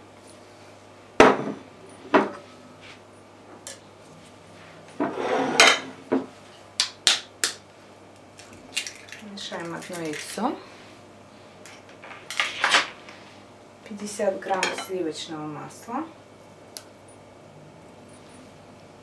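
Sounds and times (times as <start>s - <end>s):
rustling scrape of handling: 5.1s - 5.7s.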